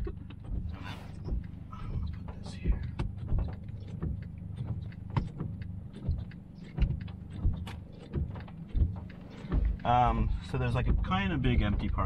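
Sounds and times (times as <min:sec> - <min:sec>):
light ticks and knocks: 0:00.0 - 0:12.0
road and engine rumble: 0:00.0 - 0:12.0.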